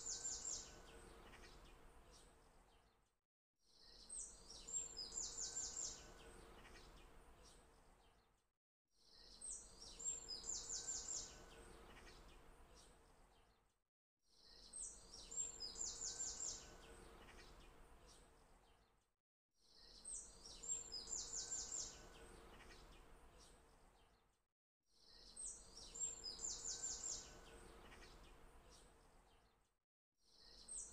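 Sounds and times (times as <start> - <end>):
birdsong chirps and trill: 0.0 - 2.9, 3.8 - 6.9, 9.1 - 13.6, 14.4 - 18.8, 19.7 - 24.2, 25.0 - 29.5, 30.3 - 30.9.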